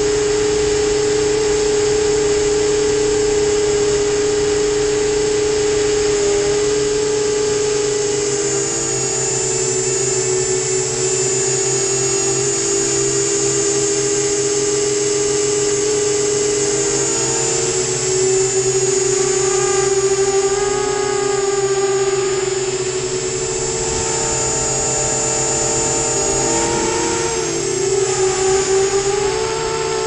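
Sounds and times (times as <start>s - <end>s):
quadcopter motors whining: 0.0s - 30.0s.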